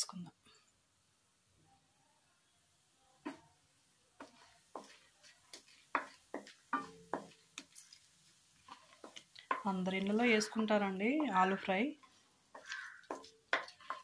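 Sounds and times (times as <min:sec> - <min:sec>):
seeds popping in hot oil: 0:03.2 - 0:14.0
wooden spatula stirring: 0:03.2 - 0:14.0.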